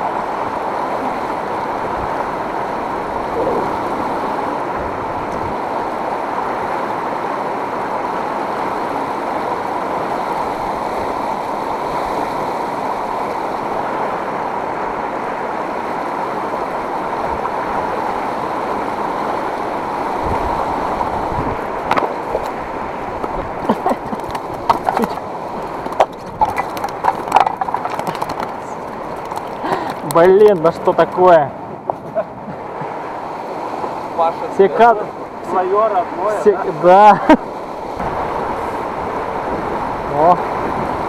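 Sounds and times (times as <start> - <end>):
river water rushing over stones: 0.0 - 41.0
sharp clicks and knocks: 24.1 - 31.2.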